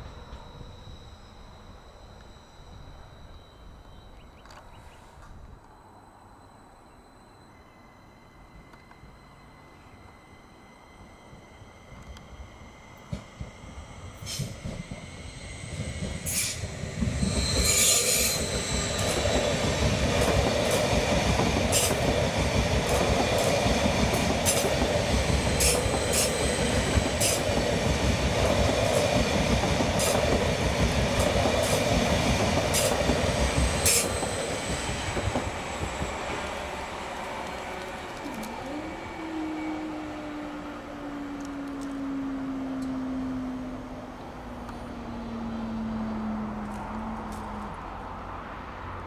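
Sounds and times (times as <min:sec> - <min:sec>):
train wheel and rail rumble: 0:00.0 - 0:49.0
high wheel squeal: 0:06.5 - 0:37.3.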